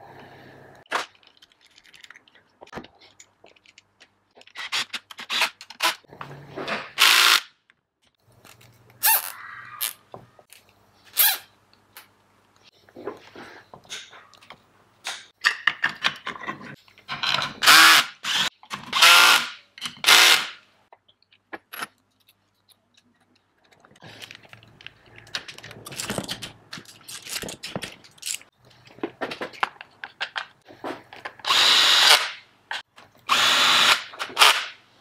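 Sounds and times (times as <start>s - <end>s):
cordless drill-driver running: 31.5s - 32.2s, 33.3s - 34.5s.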